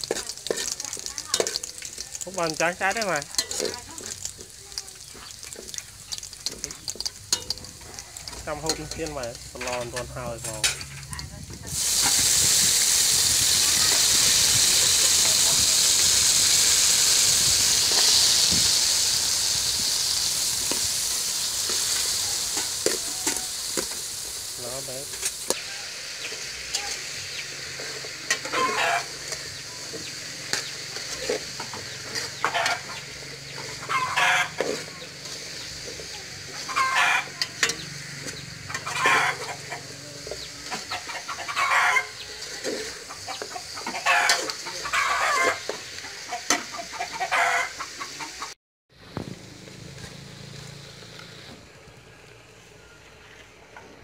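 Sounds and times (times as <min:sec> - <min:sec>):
steady high hiss: 0:11.7 - 0:47.1
chickens clucking: 0:24.9 - 0:48.6.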